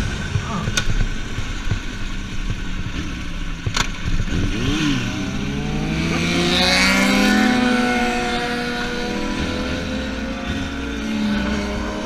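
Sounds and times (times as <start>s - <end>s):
motorcycle engine revving: 0.0s - 12.0s
motorcycle passing by: 4.3s - 12.0s.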